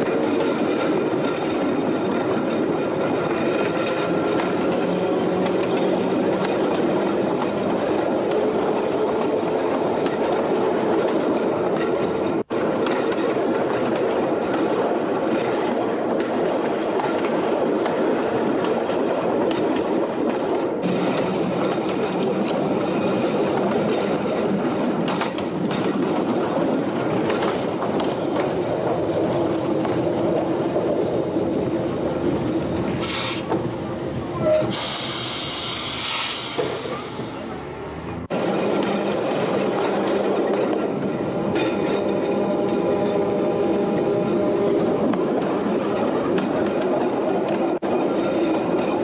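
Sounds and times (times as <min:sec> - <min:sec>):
steady tram hum: 0:00.0 - 0:49.0
tram wheels rumbling on rails: 0:00.0 - 0:49.0
short hisses: 0:33.0 - 0:33.5.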